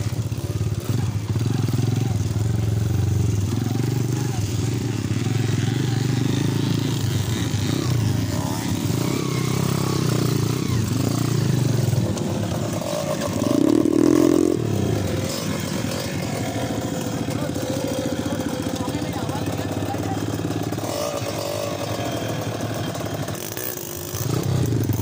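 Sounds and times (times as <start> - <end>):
small motorcycle engine running: 0.0 - 25.0.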